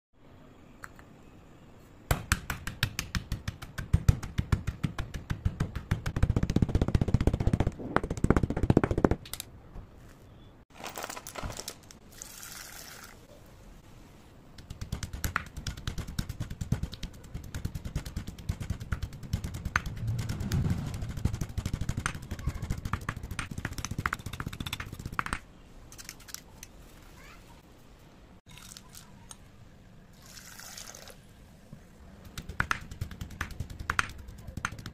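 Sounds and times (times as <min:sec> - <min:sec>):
pestle crushing chalk in mortar: 0:02.1 - 0:09.4, 0:14.6 - 0:25.4, 0:32.2 - 0:34.9.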